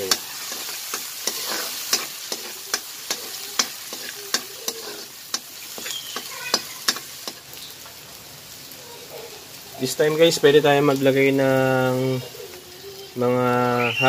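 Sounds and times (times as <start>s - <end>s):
metal spatula scraping a pan: 0.0s - 7.4s
onion and garlic sizzling: 0.0s - 14.0s.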